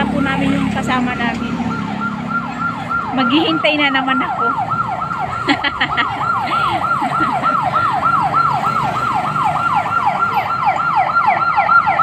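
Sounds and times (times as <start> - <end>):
electronic yelp siren: 0.0 - 12.0.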